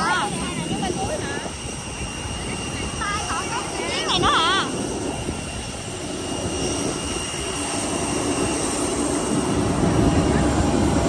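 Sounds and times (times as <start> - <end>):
jet aircraft rushing hum: 0.0 - 11.0.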